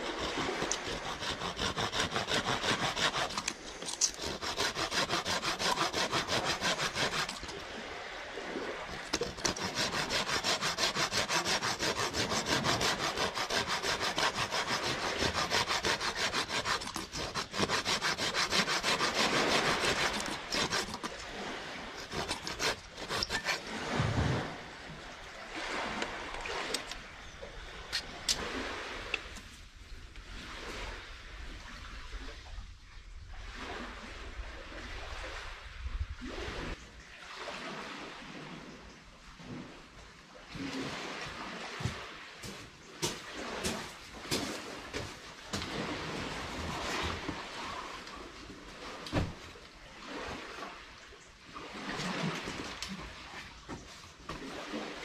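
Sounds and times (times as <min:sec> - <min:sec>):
hand saw cutting wood: 0:00.0 - 0:07.6, 0:08.9 - 0:24.0, 0:42.4 - 0:47.4.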